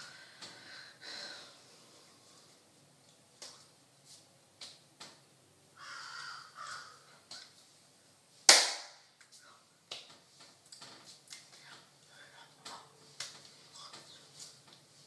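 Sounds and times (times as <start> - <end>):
loud sharp hand slap: 8.5 - 9.1.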